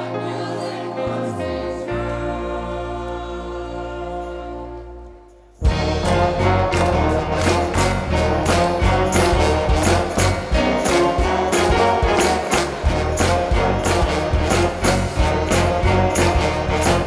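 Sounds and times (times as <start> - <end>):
band and choir sustained chords: 0.0 - 17.0
band playing loudly: 5.6 - 17.0
drum strikes: 5.6 - 17.0.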